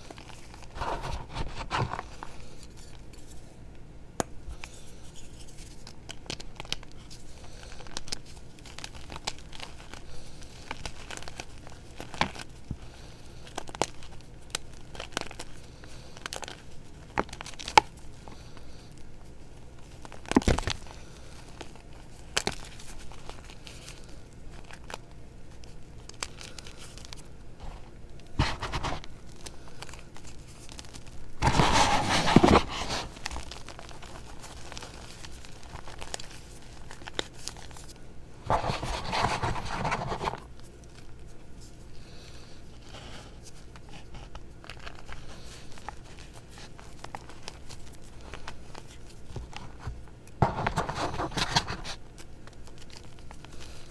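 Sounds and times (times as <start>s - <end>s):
hands crushing chalk: 26.1s - 40.6s, 42.9s - 53.9s.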